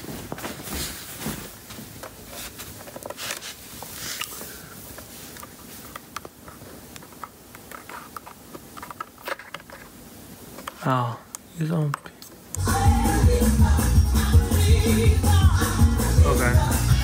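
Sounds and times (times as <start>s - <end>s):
footsteps on carpet: 0.0s - 4.0s
phone handling rustle: 2.0s - 10.8s.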